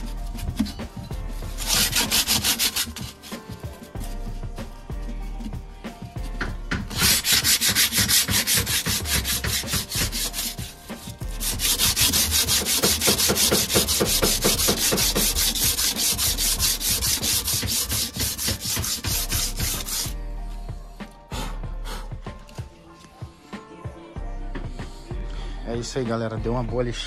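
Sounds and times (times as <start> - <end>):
sandpaper rubbing on metal: 0.0 - 4.1, 6.9 - 20.2.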